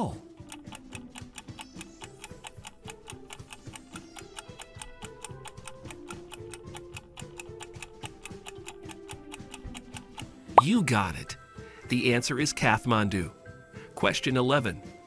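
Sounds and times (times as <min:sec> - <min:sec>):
clock ticking quickly: 0:00.0 - 0:10.6
soft background music: 0:00.0 - 0:15.0.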